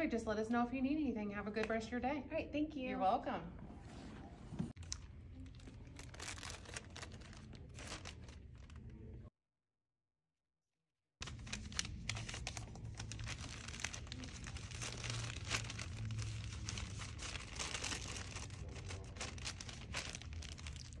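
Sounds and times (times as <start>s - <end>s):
wrapper crinkling and tearing: 4.8s - 9.1s, 11.2s - 21.0s.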